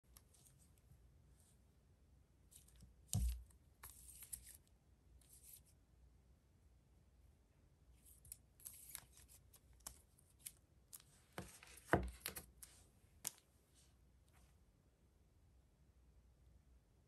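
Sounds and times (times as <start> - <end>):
photo prints rustling: 8.6 - 13.4.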